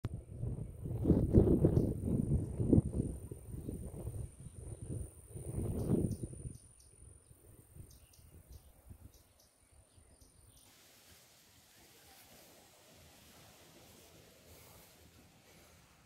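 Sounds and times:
faint hiss: 0:05.3 - 0:16.0.

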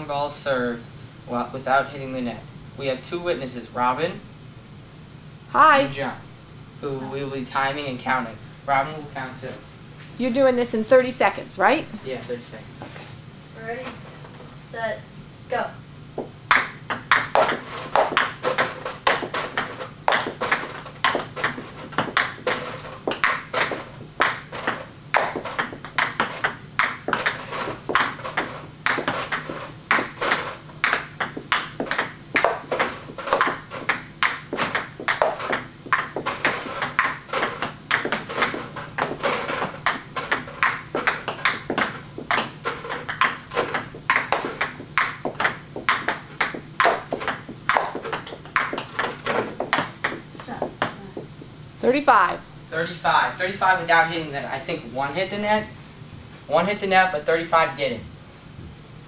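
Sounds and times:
ping pong balls bouncing on table: 0:16.2 - 0:51.5
paddle striking ping pong balls: 0:16.2 - 0:51.6.

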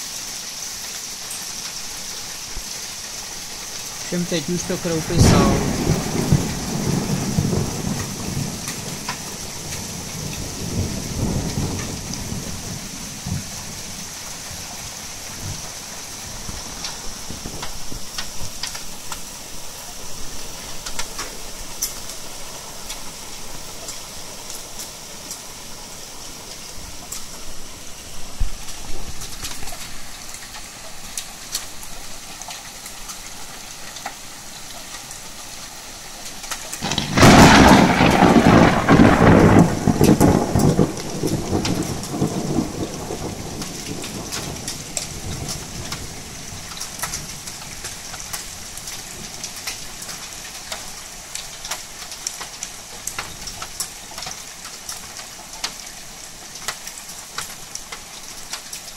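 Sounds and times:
heavy rain falling: 0:00.0 - 0:58.9
loud thunderclap: 0:04.2 - 0:13.5, 0:36.8 - 0:45.5.

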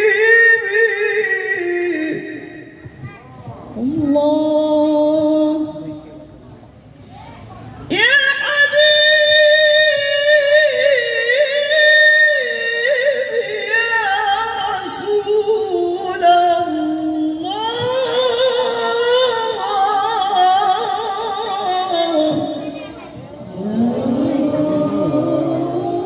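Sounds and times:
woman singing devotional song: 0:00.0 - 0:02.8, 0:03.8 - 0:06.0, 0:07.9 - 0:22.7, 0:23.6 - 0:26.0.

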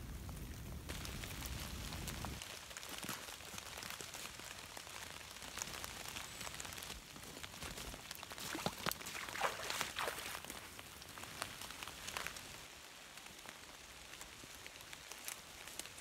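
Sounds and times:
rain on wet leaves and water: 0:00.0 - 0:16.0
footsteps through soaked leaves: 0:05.6 - 0:12.6.

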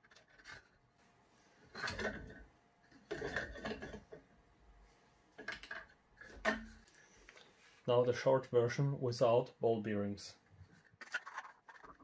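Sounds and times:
plastic spool scraping and rattling on rod: 0:10.8 - 0:12.0.

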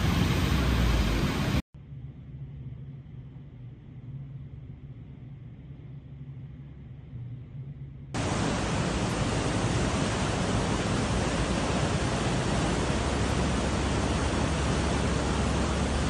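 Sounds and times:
faint low hum: 0:00.6 - 0:16.0
river rushing in flood: 0:08.2 - 0:16.0.

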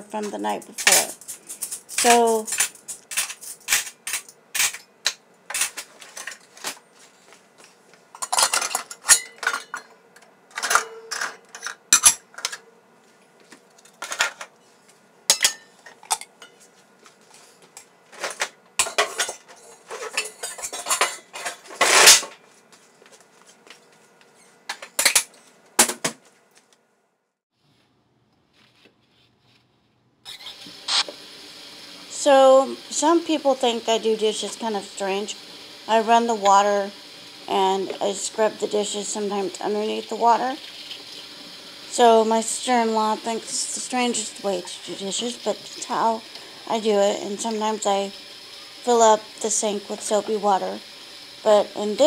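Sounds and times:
dishes clinking and clattering: 0:08.1 - 0:12.6, 0:15.3 - 0:16.6, 0:18.2 - 0:22.4.

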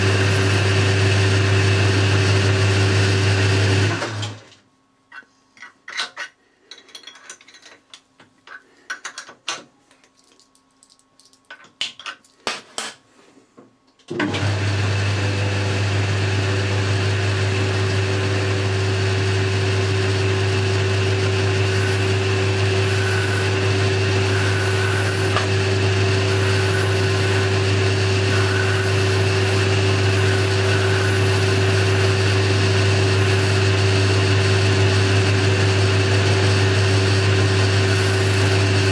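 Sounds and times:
lathe motor humming: 0:14.2 - 0:38.9.

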